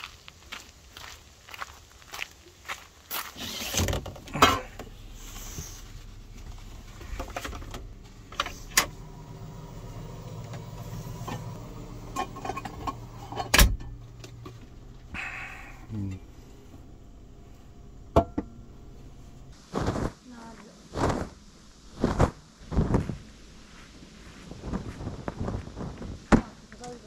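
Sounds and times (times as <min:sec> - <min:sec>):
low motor hum: 0:03.8 - 0:19.6.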